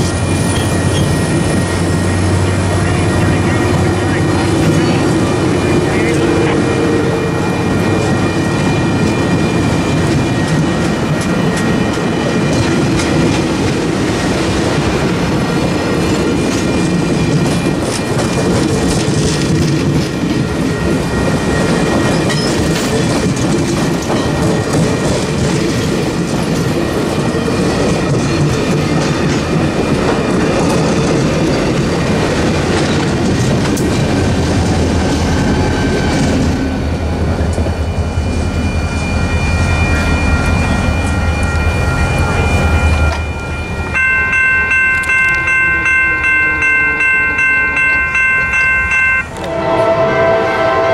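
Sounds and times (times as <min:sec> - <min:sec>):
steady high-pitched tones: 0:00.0 - 0:17.9, 0:35.5 - 0:50.9
train coaches rolling past: 0:00.0 - 0:50.9.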